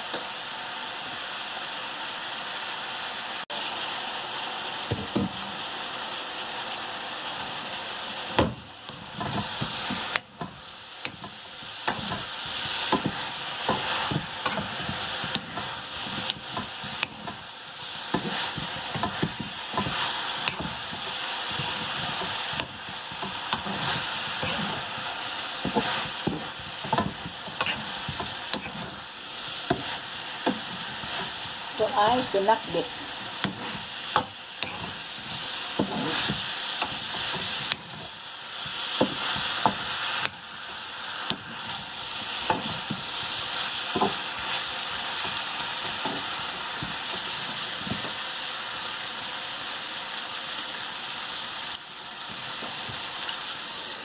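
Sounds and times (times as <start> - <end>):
food sizzling in a wok: 0.0 - 54.0
spatula scraping a pan: 9.0 - 48.2.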